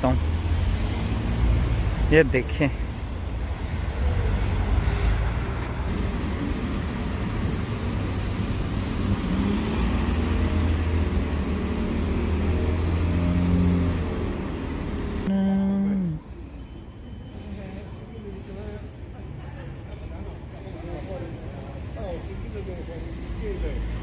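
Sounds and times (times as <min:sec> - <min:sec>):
car engines passing: 0:00.0 - 0:15.3
low traffic rumble: 0:00.0 - 0:24.0.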